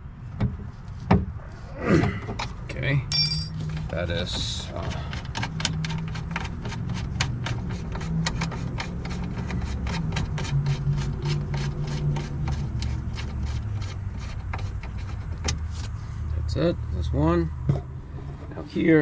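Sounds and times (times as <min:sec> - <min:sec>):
rubbing and scraping: 0:03.7 - 0:16.2.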